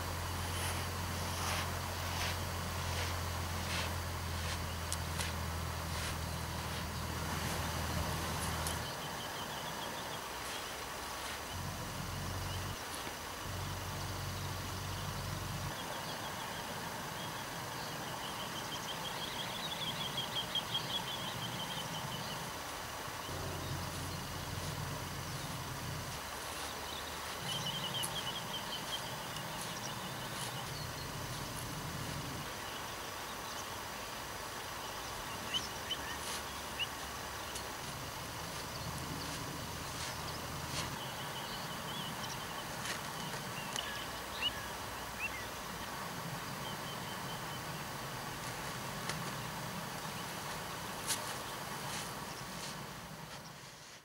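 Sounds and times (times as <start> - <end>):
steady background noise: 0.0 - 54.0
low rumble: 23.3 - 32.5.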